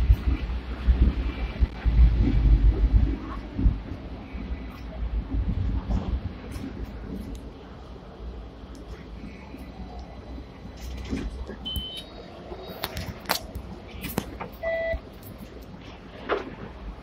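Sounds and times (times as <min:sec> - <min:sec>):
tram rumbling: 0:00.0 - 0:17.0
electronic beeps: 0:11.6 - 0:12.2, 0:14.6 - 0:15.0.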